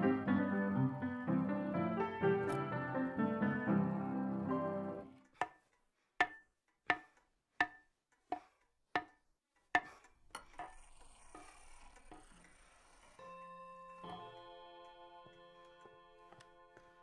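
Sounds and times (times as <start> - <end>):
hammer striking wooden beam: 5.4 - 5.6, 6.2 - 10.7.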